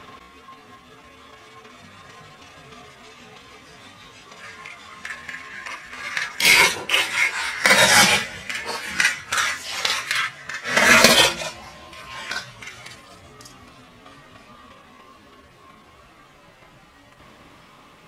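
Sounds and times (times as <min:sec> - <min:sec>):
plastic toys cracking and crunching: 0:04.3 - 0:13.6.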